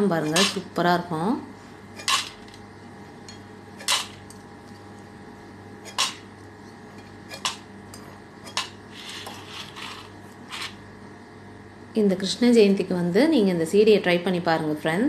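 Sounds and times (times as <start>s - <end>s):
fried snacks clattering in pan: 2.0s - 2.6s, 3.8s - 4.3s, 5.9s - 6.3s.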